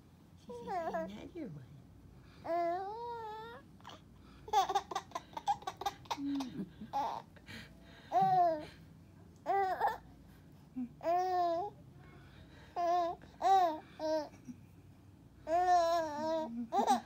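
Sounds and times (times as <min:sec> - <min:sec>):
baby laughing: 0:04.5 - 0:07.3, 0:15.5 - 0:17.0.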